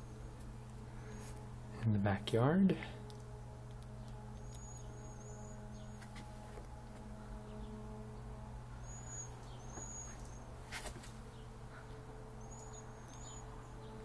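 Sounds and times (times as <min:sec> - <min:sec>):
steady low hum: 0:00.0 - 0:14.0
small bird chirping: 0:03.0 - 0:06.7, 0:07.5 - 0:10.5, 0:12.4 - 0:14.0.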